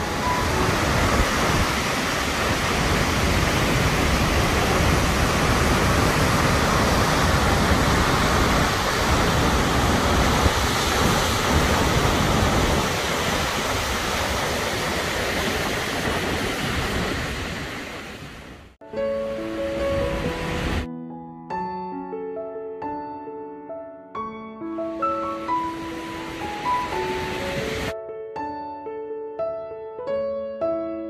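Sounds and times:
waterfall rushing with deep rumble: 0.0 - 18.7, 19.9 - 20.8, 25.4 - 27.9.

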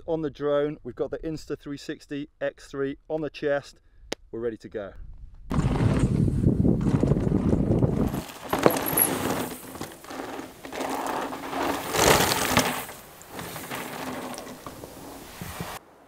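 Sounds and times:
wind rumble on microphone: 5.0 - 9.1
bike clicks and rattles: 5.5 - 15.8
bike tyres crunching over gravel: 5.5 - 16.0.

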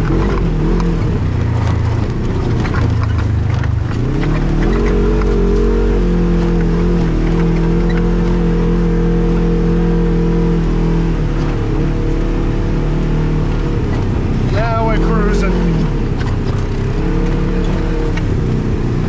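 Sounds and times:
scattered clicks and knocks: 0.0 - 5.7, 15.6 - 18.7
off-road vehicle engine running: 0.0 - 19.0.

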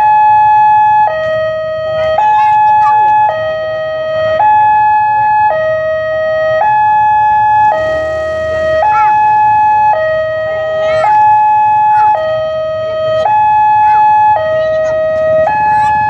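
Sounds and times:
two-tone level crossing alarm: 0.0 - 16.0.

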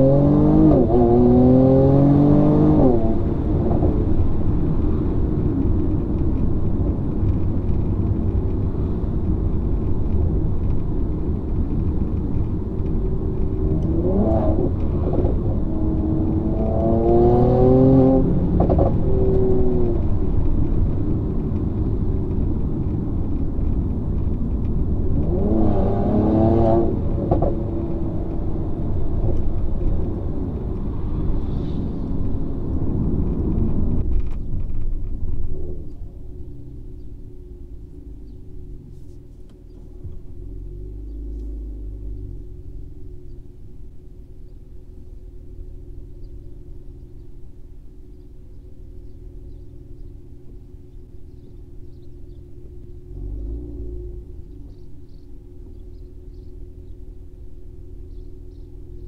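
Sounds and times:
engine accelerating hard: 0.0 - 5.7, 11.1 - 21.2, 21.8 - 35.0
car engine droning in cabin: 0.0 - 59.0.

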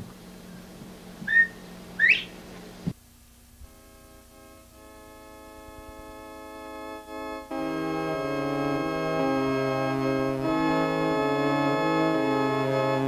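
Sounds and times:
short whistles: 1.2 - 2.4
electronic organ chord: 3.6 - 13.0.

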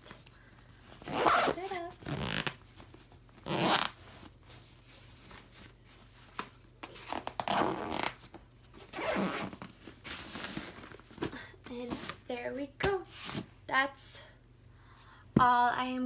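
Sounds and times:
backpack zipper closing: 1.0 - 2.5, 3.4 - 4.0, 7.0 - 8.1, 8.9 - 9.6.

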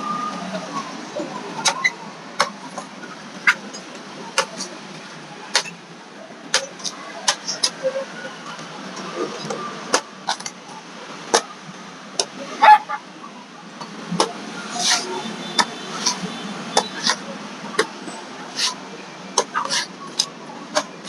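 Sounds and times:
street traffic hum: 0.0 - 21.0
cleaver scraping: 14.7 - 17.9, 18.5 - 18.8, 19.4 - 20.9.

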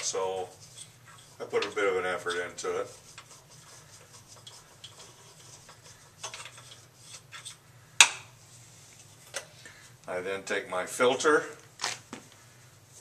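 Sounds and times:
scrapes and ticks of grinder cleaning: 0.0 - 7.6.

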